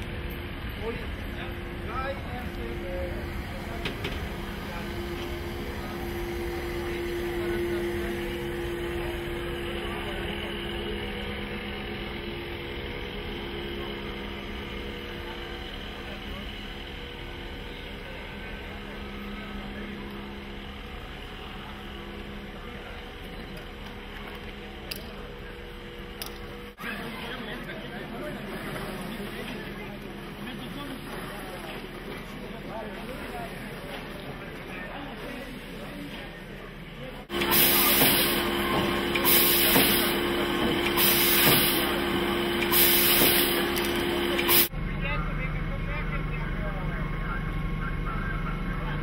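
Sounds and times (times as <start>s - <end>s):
faint crowd voices: 0.0s - 49.0s
hum and hiss of trains: 0.0s - 49.0s
steam locomotive hissing steam: 37.3s - 44.7s.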